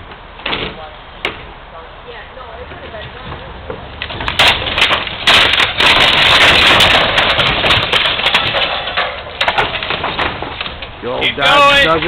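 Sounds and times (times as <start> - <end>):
metal roof and wood tearing apart: 4.0 - 12.0.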